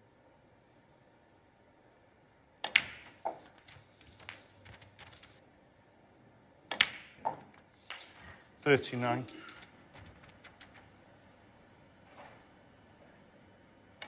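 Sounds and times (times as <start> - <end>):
snooker balls clicking: 2.6 - 5.4, 6.7 - 8.2, 9.4 - 11.0
cue tip hitting ball: 2.7 - 3.4.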